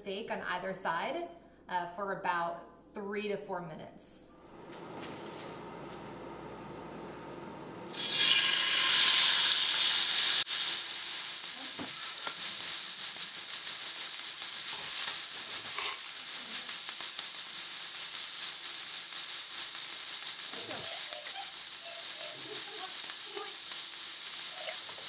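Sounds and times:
steak sizzling in hot oil: 0:06.8 - 0:25.0.

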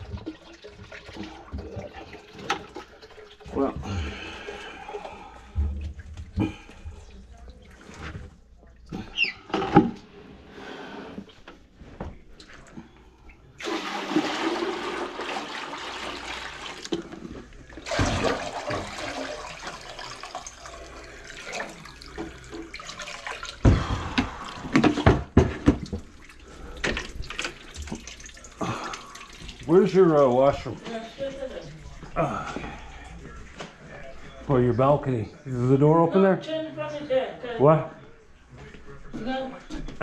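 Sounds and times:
water sloshing in bucket: 0:00.0 - 0:10.1, 0:13.6 - 0:33.9.

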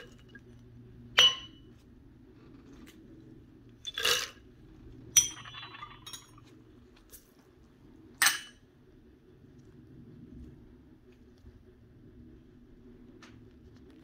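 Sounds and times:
ceramic bowl clinking on mortar: 0:01.2 - 0:01.7, 0:05.2 - 0:06.4, 0:08.2 - 0:08.6.

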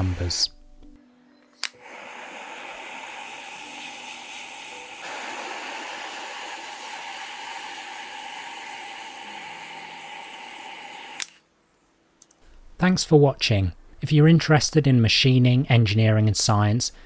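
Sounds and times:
heat gun blowing air: 0:01.7 - 0:11.4.

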